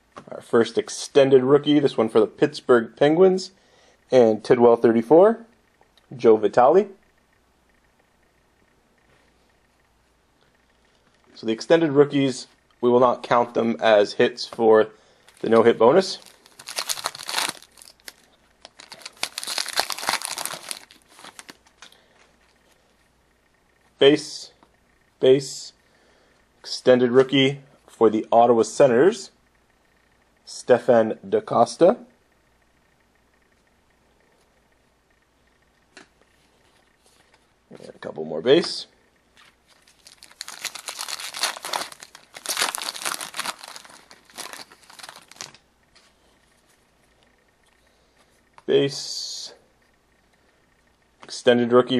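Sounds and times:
wrapper crinkling and tearing: 0:15.3 - 0:21.9, 0:39.7 - 0:45.6.

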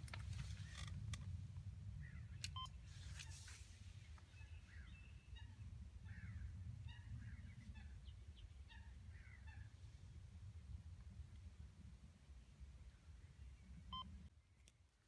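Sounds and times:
low steady rumble: 0:00.0 - 0:14.7
small birds chirping: 0:01.9 - 0:09.9.

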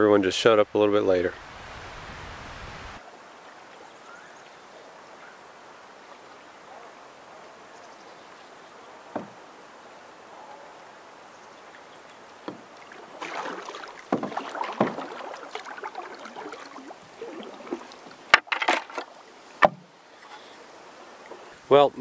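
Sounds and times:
paddle strokes splashing water: 0:11.6 - 0:21.7
sharp knocks: 0:19.6 - 0:19.9.

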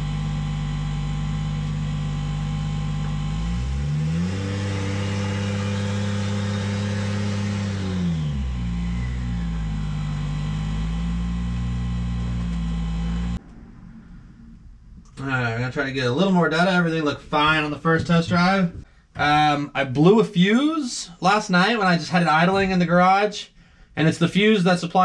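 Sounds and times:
car engine idling and revving: 0:00.0 - 0:13.7
fuel pump whine: 0:00.0 - 0:15.3.

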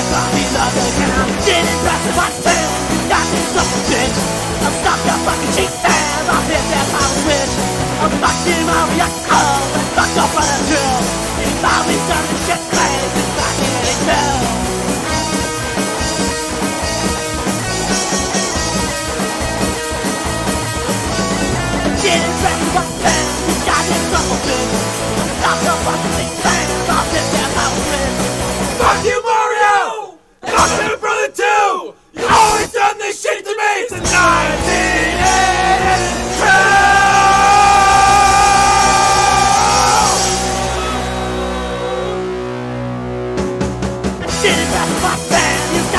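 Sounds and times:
punk rock band playing: 0:00.0 - 0:29.2, 0:30.4 - 0:31.0, 0:32.2 - 0:32.7, 0:34.0 - 0:45.9
person shouting vocals: 0:33.8 - 0:41.0.

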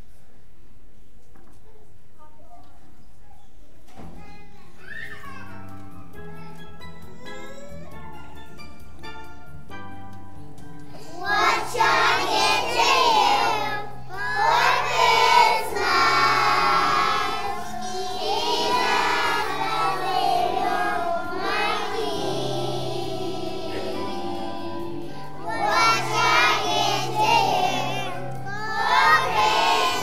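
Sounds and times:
instrumental accompaniment: 0:05.4 - 0:30.0
children singing: 0:11.1 - 0:30.0.

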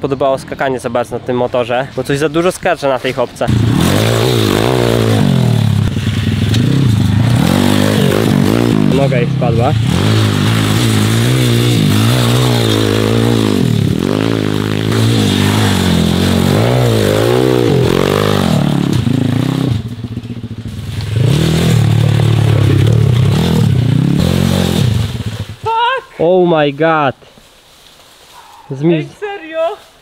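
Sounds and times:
small motorcycle engine revving: 0:03.5 - 0:25.6.

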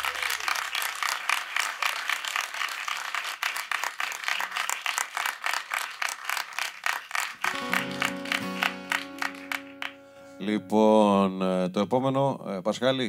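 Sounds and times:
small audience applauding: 0:00.0 - 0:10.3.

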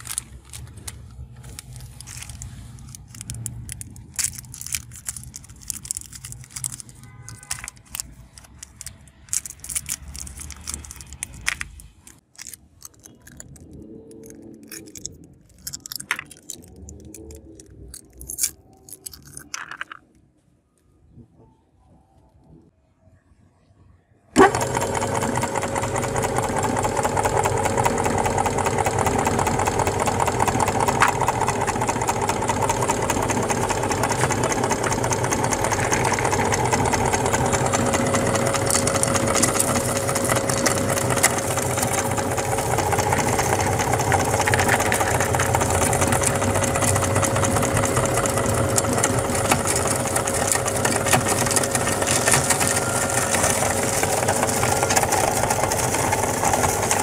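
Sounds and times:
candies clicking while crushed: 0:00.0 - 0:20.1, 0:35.2 - 0:57.0
meat grinder humming: 0:24.4 - 0:57.0.

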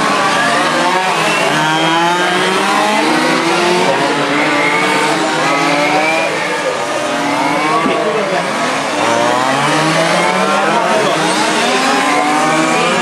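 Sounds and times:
model racing car engines: 0:00.0 - 0:13.0.

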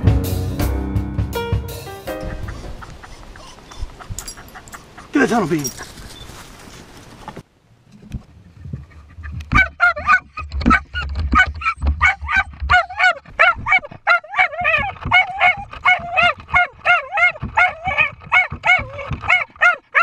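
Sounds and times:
dog yipping barks: 0:09.5 - 0:20.0.

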